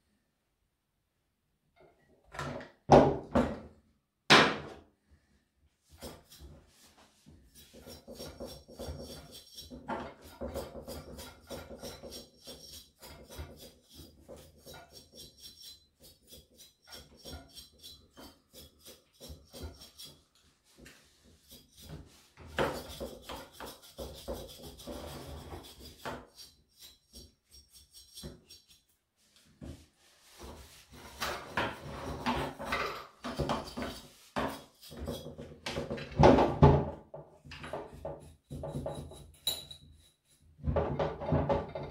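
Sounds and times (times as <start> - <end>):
brush scrubbing metal fins: 5.9 - 35.6, 37.8 - 40.5.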